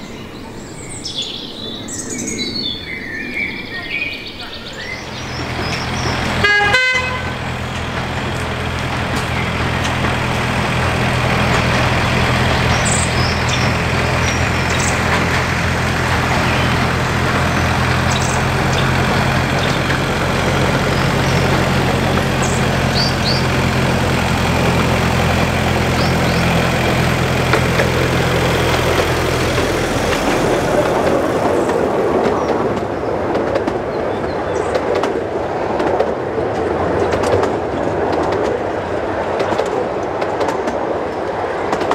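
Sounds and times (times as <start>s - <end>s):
birds chirping: 0.0s - 33.1s
diesel locomotive engine: 0.0s - 41.9s
wheels rumbling on rails: 0.0s - 41.9s.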